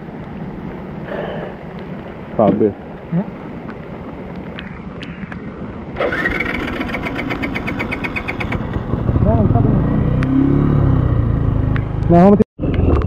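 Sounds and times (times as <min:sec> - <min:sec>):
motorcycle starter cranking engine: 0:06.0 - 0:08.8.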